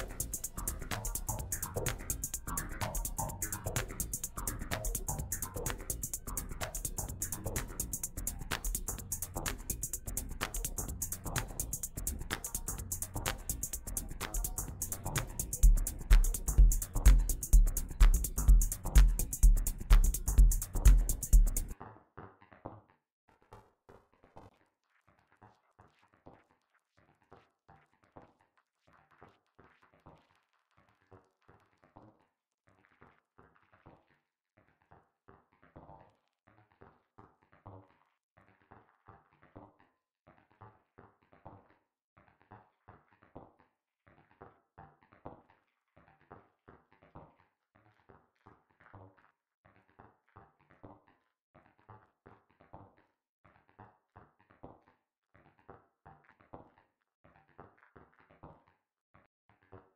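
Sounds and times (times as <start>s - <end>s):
glitchy minimal house loop: 0.0s - 21.8s.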